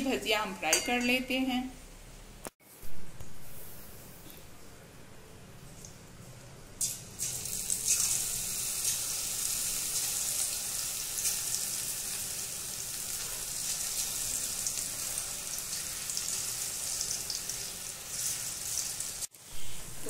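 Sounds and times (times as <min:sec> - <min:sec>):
batter deep-frying in oil: 0:06.8 - 0:19.6.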